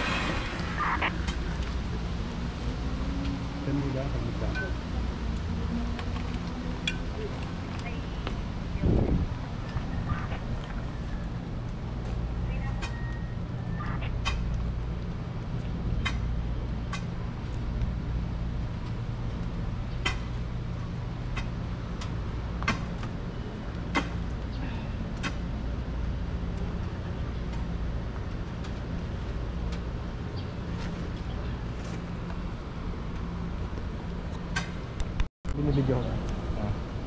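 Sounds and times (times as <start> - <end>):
low engine-like hum: 0.0 - 37.0.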